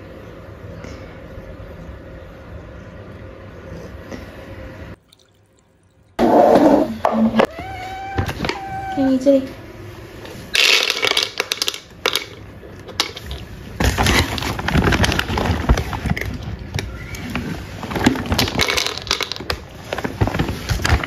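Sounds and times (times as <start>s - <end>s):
cat crunching dry kibble: 10.5s - 16.6s, 17.8s - 21.0s.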